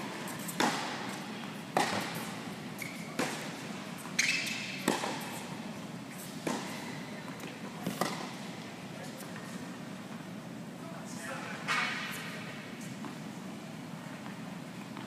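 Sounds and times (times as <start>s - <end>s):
ball bouncing on hard court: 0.4s - 2.3s, 3.1s - 3.5s, 4.2s - 5.2s, 7.8s - 8.3s
tennis ball struck by racket: 0.4s - 2.4s, 3.2s - 3.6s, 4.8s - 5.3s, 6.4s - 6.7s, 7.8s - 8.4s
shoe squeaks on court: 2.8s - 3.2s, 4.0s - 4.8s.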